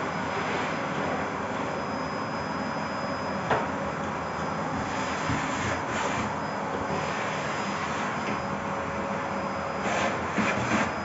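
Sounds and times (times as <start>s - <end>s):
vacuum cleaner running: 2.8s - 11.0s
vacuum nozzle scuffing floor: 4.8s - 8.2s.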